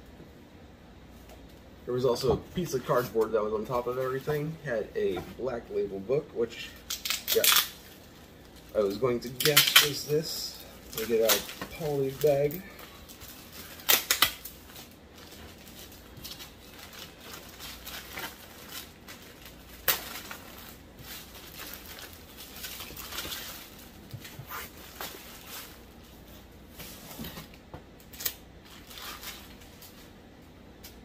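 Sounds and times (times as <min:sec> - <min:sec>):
plastic bag crinkling: 0:06.6 - 0:26.6, 0:28.1 - 0:30.2.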